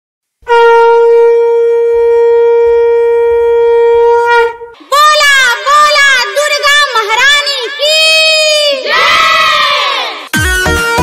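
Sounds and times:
conch shell blown: 0.4 - 4.8.

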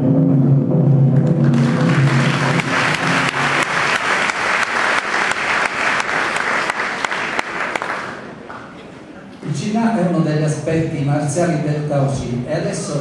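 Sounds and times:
backing music: 0.0 - 6.9
audience applauding: 1.2 - 8.8.

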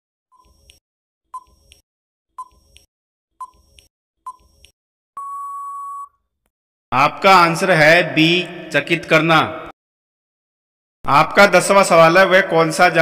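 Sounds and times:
long steady beep: 5.2 - 6.2.

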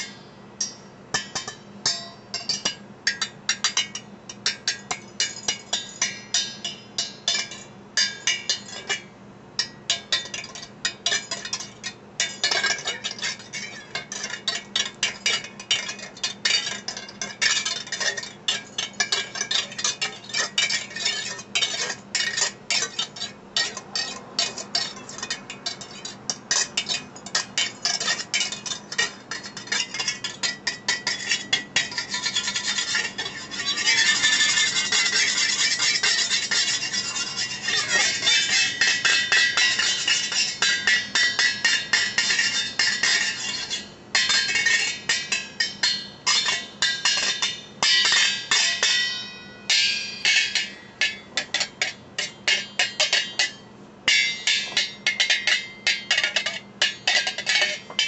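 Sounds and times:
whisk tapping metal pot lid: 26.5 - 49.1.

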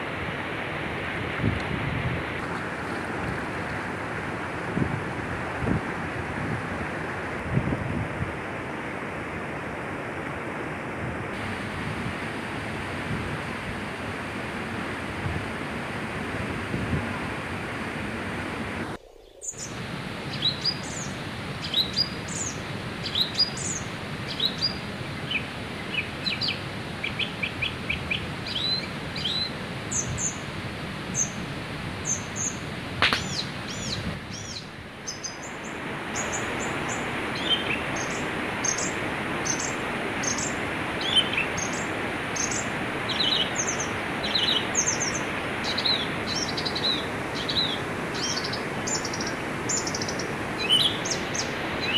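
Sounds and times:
river rushing: 0.0 - 51.9
small birds chirping: 32.0 - 51.9.

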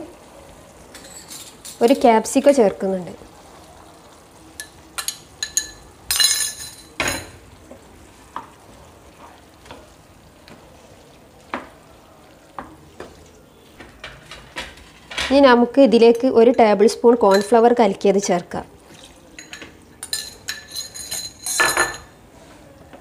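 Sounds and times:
spoon clinking and scraping pan: 0.9 - 2.0, 4.6 - 7.4, 16.0 - 17.7, 19.3 - 22.1.

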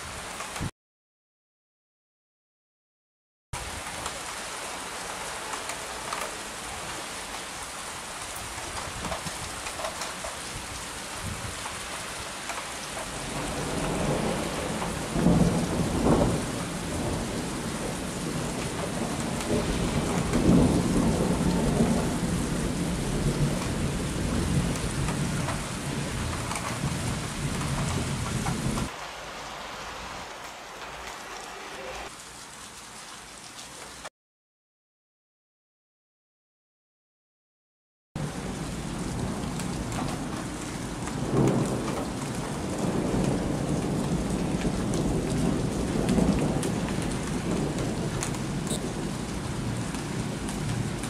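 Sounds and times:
steady rain: 0.0 - 0.7, 3.6 - 34.1, 38.2 - 51.0
rolling thunder: 13.1 - 29.0, 38.2 - 51.0.

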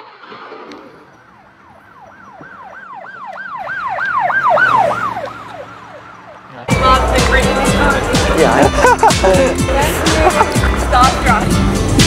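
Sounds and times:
emergency siren yelping: 1.0 - 6.6.

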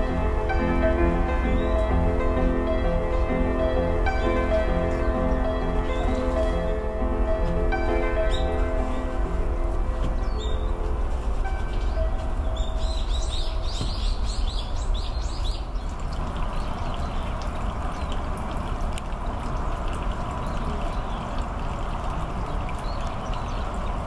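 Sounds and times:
water trickling into stone basin: 11.3 - 24.0
small bird calling: 11.7 - 16.0.

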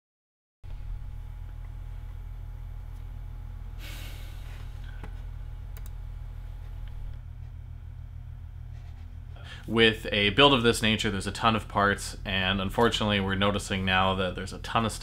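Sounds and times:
low room hum: 0.7 - 15.0
breathy nasal exhale: 3.8 - 5.1.

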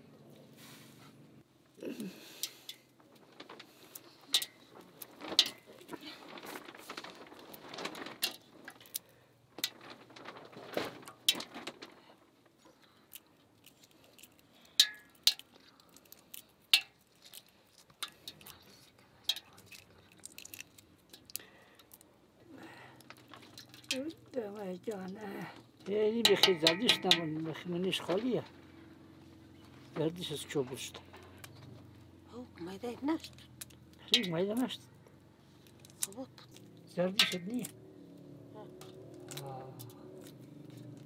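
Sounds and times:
soft rustling: 2.9 - 12.9
dishes and utensils clinking: 26.3 - 27.4, 37.2 - 37.6.

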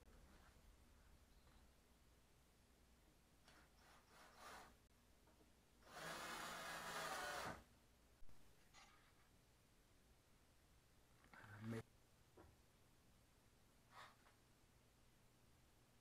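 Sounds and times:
cordless drill running: 5.9 - 7.6.

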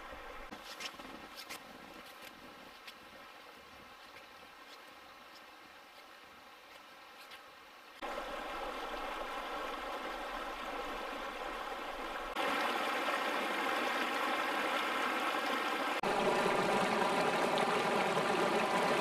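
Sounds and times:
stream running over rocks: 0.0 - 19.0.

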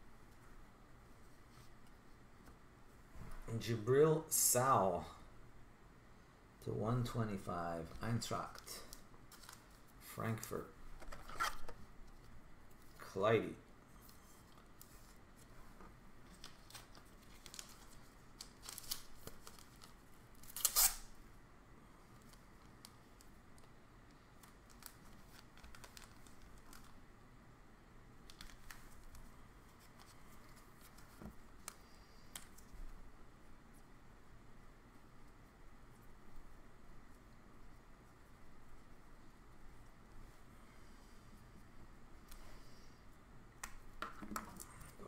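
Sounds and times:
plastic wrapper crinkling: 16.3 - 21.0, 24.4 - 27.0.

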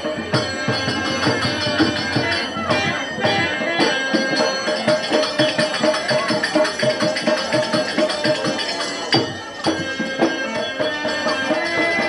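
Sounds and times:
reedy melody tones: 0.0 - 5.6
hand drum beating: 0.0 - 12.0.

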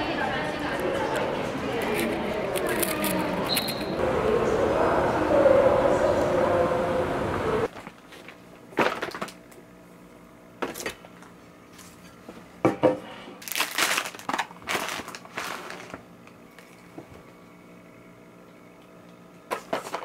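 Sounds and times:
paper and plastic rustling: 13.4 - 16.9.

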